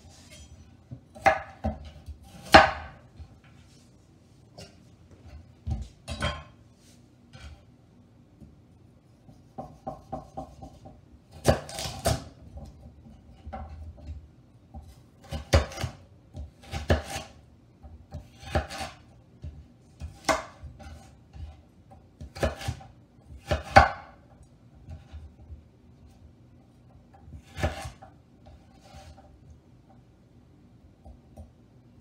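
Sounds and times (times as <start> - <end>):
knife cutting carrot: 11.3 - 12.8, 14.8 - 17.4, 18.1 - 21.6, 22.2 - 24.0, 27.2 - 29.3.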